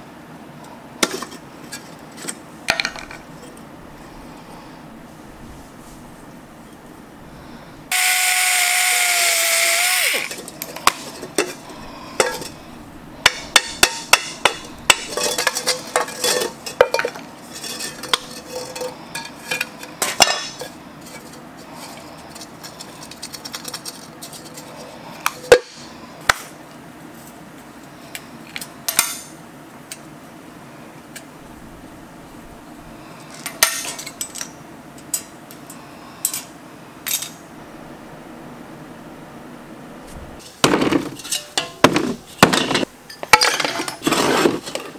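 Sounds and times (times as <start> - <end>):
power tool whining: 7.9 - 10.4
metal grill parts clanking: 10.3 - 24.7, 33.4 - 35.3, 40.4 - 44.9.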